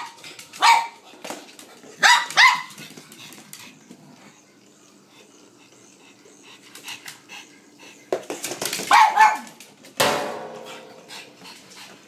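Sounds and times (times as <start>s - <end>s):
dog barking: 0.0s - 1.0s, 2.0s - 2.7s, 8.9s - 9.6s.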